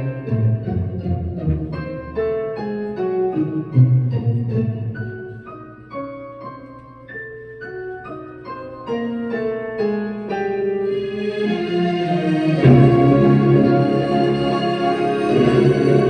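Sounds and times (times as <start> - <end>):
slow piano melody: 0.0 - 16.0.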